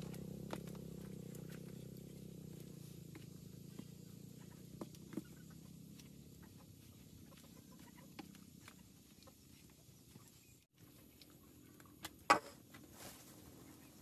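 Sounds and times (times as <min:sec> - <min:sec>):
wooden paddle stirring food: 0:02.5 - 0:12.8.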